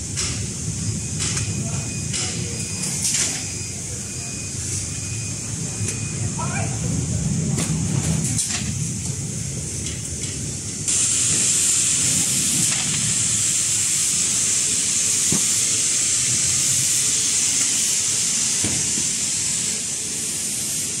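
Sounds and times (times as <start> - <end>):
high-pitched air hiss: 10.8 - 21.0.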